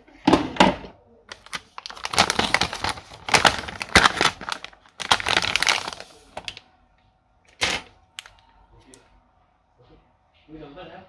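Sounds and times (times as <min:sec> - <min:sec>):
plastic bag crinkling: 0:01.3 - 0:06.6.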